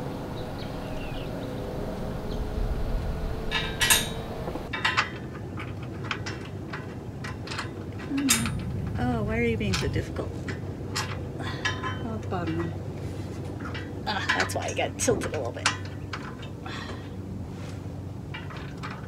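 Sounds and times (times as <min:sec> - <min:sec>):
steel armor clinking against brackets: 0:03.5 - 0:08.7, 0:18.3 - 0:19.0.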